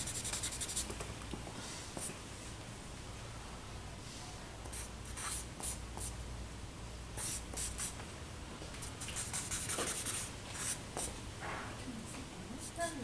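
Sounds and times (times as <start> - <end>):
charcoal scratching on paper: 0.1 - 0.8, 9.0 - 10.8.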